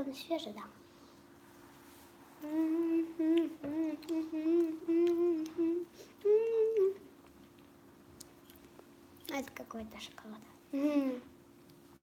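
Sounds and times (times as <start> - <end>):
girl humming: 2.4 - 7.1, 10.7 - 11.4.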